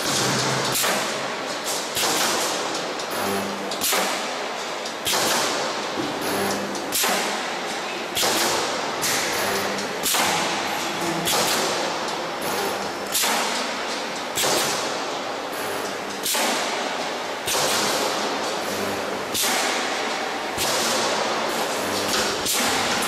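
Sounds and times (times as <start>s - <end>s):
welding machine thud: 0.0s - 4.3s, 17.4s - 20.0s.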